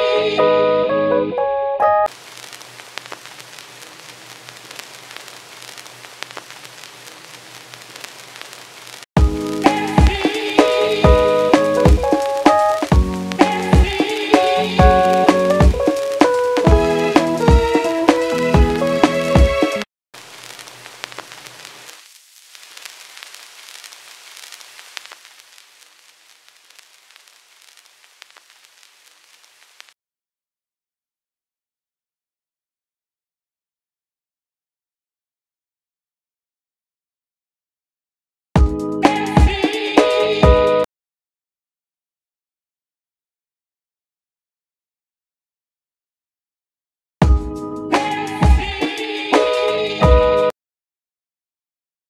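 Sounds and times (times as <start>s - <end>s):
vinyl crackles and pops: 2.1s - 30.0s, 39.1s - 40.1s
vinyl surface hiss: 2.1s - 30.0s, 39.1s - 40.4s, 48.0s - 50.0s
drum and keys loop: 9.2s - 19.8s, 47.2s - 48.8s.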